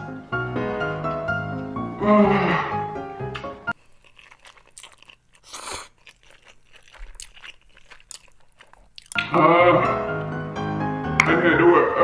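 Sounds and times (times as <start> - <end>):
music: 0.0 - 3.8, 9.2 - 12.0
wet chewing: 3.7 - 9.2
noodle slurp: 3.8 - 9.2.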